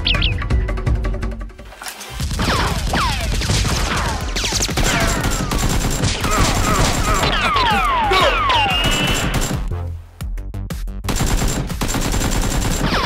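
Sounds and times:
gunshots: 2.1 - 9.7, 11.1 - 13.0
bullet whistles: 8.5 - 9.4.

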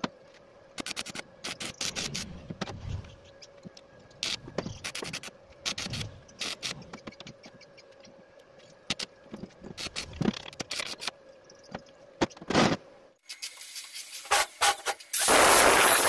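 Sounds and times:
steel parts scraping and clicking: 8.6 - 11.2.

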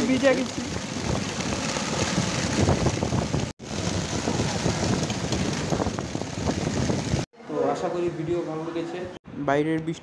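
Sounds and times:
rain: 0.0 - 7.3
wet street traffic: 0.0 - 7.3
wind buffeting microphone: 0.0 - 7.3.

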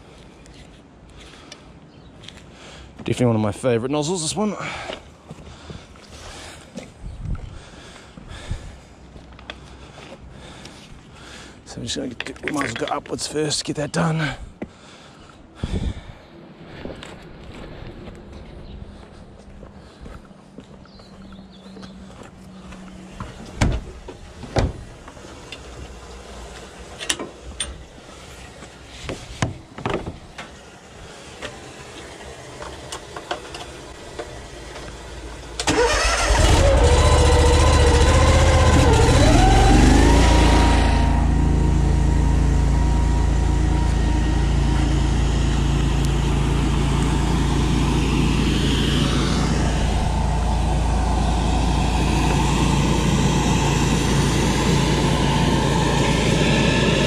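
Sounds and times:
petrol engine running: 30.6 - 57.0.

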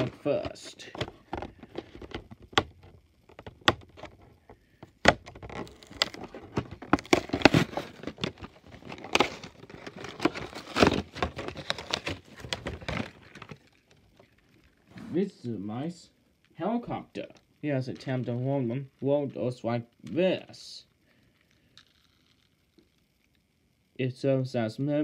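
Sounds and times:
packaging being opened: 0.0 - 14.4.

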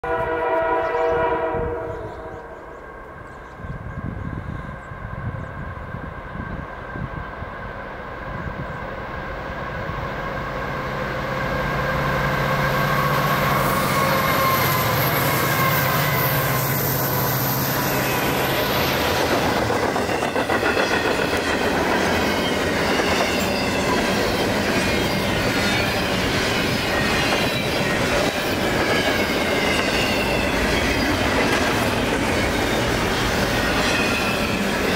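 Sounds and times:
locomotive horn chord: 0.0 - 2.7, 12.3 - 17.2
locomotive engine drone and whine: 1.9 - 34.9
train wheels on rails: 2.2 - 34.9.

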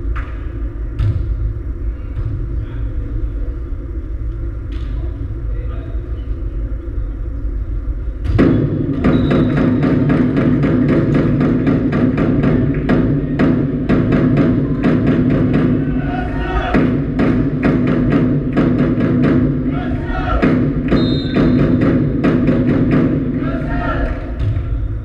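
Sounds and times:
low rumble: 0.0 - 25.0
volleyball hits: 8.2 - 15.9
fast percussive beating: 8.4 - 24.7.

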